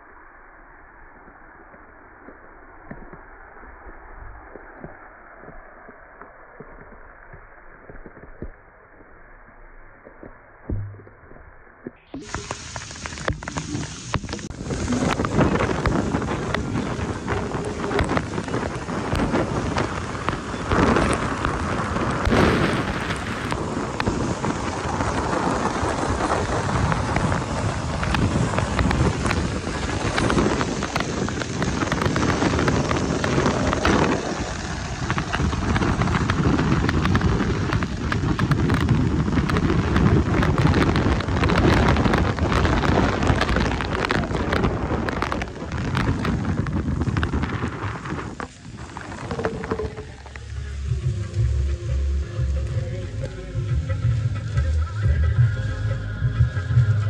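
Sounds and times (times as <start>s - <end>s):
low rumble: 0.0s - 57.0s
heavy rain pouring: 12.1s - 57.0s.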